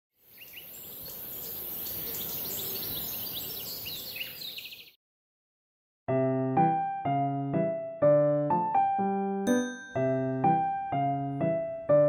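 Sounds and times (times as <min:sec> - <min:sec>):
birds chirping and trilling: 0:00.2 - 0:05.0.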